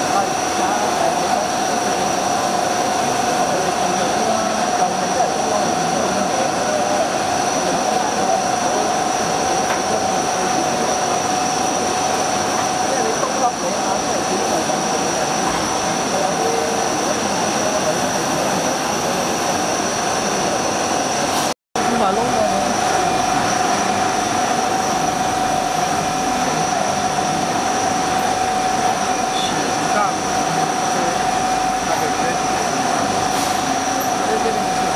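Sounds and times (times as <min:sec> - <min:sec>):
machine tool whine: 0:00.0 - 0:34.9
coolant hissing and splashing: 0:21.3 - 0:34.9
hiss of coolant spray: 0:33.3 - 0:33.7.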